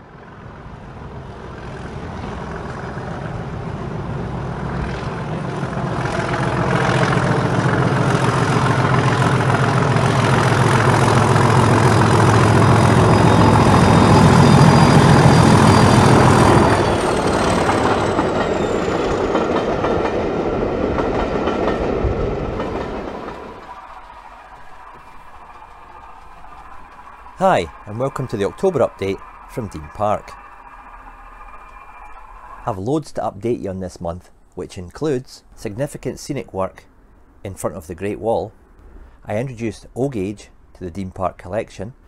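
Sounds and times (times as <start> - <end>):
diesel locomotive running: 0.0 - 41.3
wheels clattering over rail joints: 5.6 - 33.2.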